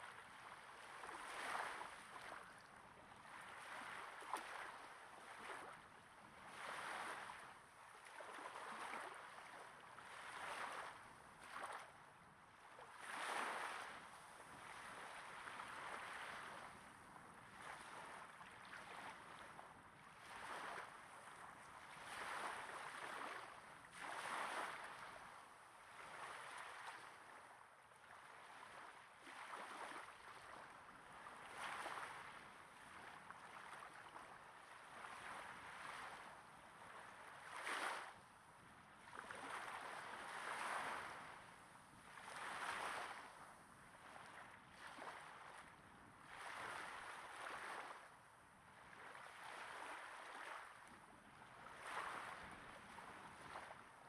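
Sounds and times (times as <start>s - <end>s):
small waves breaking on beach: 0.0s - 54.0s.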